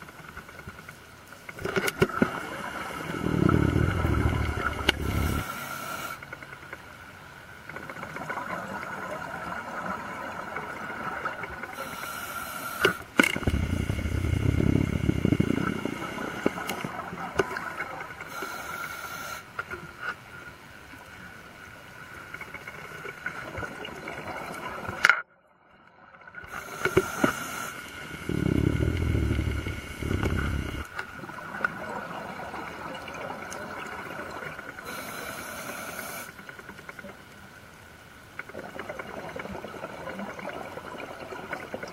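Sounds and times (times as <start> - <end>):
bubbling exhale: 3.0 - 6.2, 11.8 - 16.7, 26.5 - 30.9
steady high whine: 3.2 - 6.0, 13.4 - 16.7, 26.8 - 30.9
regulator hissing inhales: 4.2 - 6.2, 11.8 - 14.9, 18.3 - 19.5, 26.5 - 30.9, 34.8 - 36.4.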